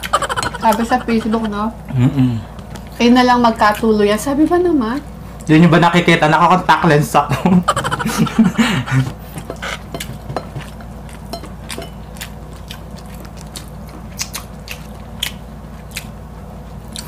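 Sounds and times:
chewing: 0:00.0 - 0:01.6, 0:02.5 - 0:05.5, 0:09.0 - 0:17.0.

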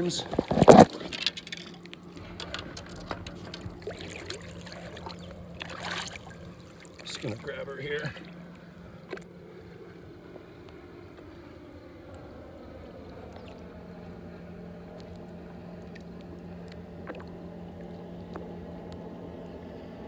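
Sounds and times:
low motor hum: 0:00.0 - 0:20.0
water splashes and drips: 0:00.9 - 0:09.3, 0:14.9 - 0:19.0.

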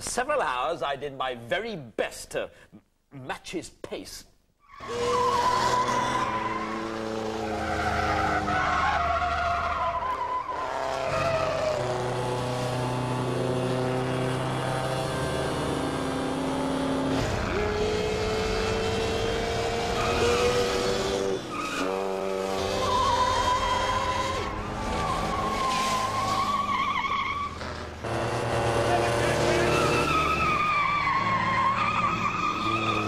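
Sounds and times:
racing car engines at speed: 0:04.8 - 0:33.0.

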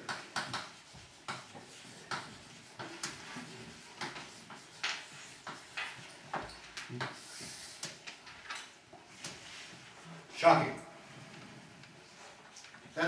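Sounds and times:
chalk tapping and scratching: 0:00.0 - 0:08.1.

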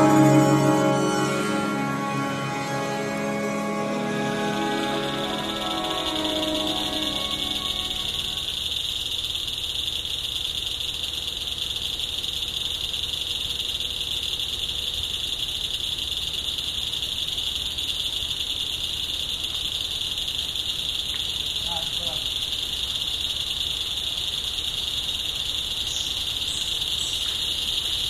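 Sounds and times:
music: 0:00.0 - 0:08.6
high-pitched insect chorus: 0:00.0 - 0:28.0.

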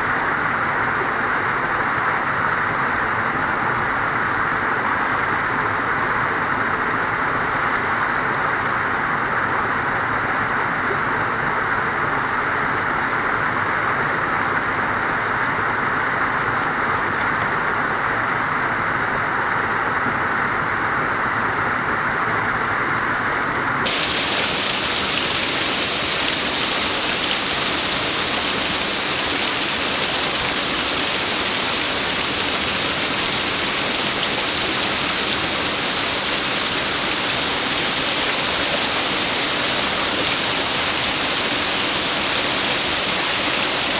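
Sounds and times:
waterfall rushing over rocks: 0:23.8 - 0:43.9.

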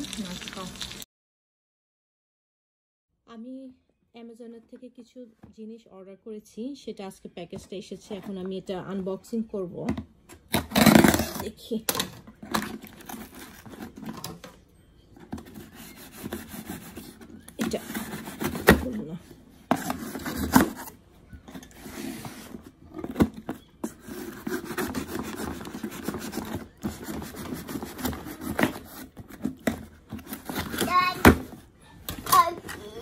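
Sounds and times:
packaging rubbing and scraping: 0:10.5 - 0:11.5, 0:12.4 - 0:14.4, 0:15.3 - 0:31.7.

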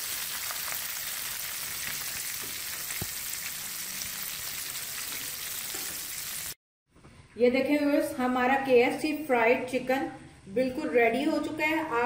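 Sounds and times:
chicken deep-frying in oil: 0:00.0 - 0:06.6.

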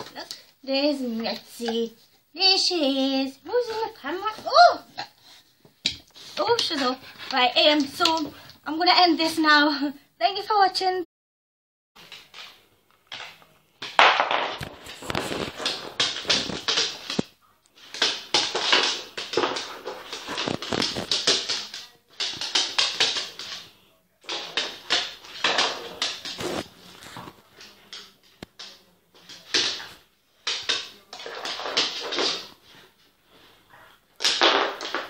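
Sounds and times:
dog claws clattering on floor: 0:12.0 - 0:32.8, 0:34.2 - 0:35.0.

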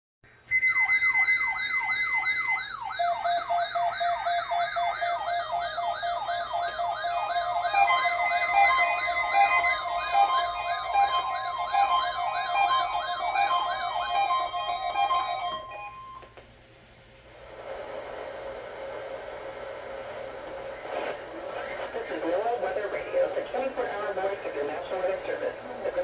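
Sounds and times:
electronic beep tones: 0:00.5 - 0:16.2
siren-like alert whoop: 0:00.5 - 0:16.2.

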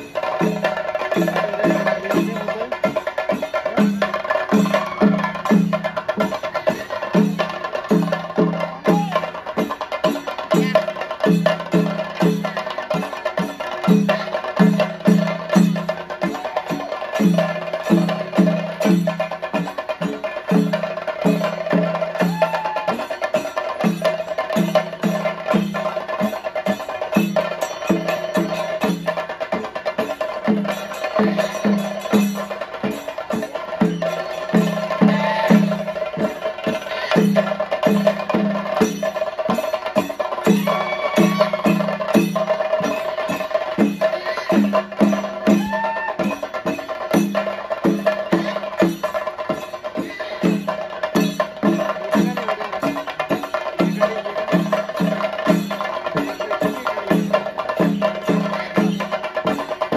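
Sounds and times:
drums beaten with sticks: 0:00.0 - 0:59.9.

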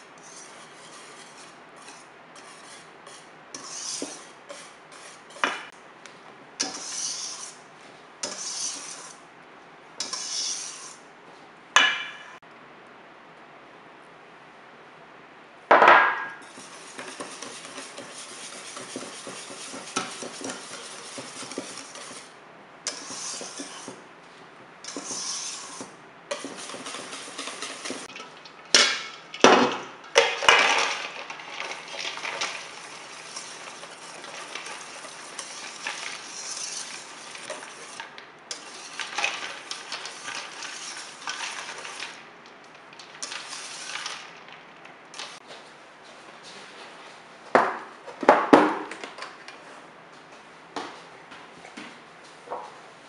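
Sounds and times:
whisk scraping metal bowl: 0:00.0 - 0:05.7, 0:06.6 - 0:07.6, 0:08.2 - 0:09.2, 0:10.0 - 0:11.0, 0:16.4 - 0:24.0, 0:24.9 - 0:29.2, 0:30.5 - 0:42.2, 0:43.0 - 0:44.4.

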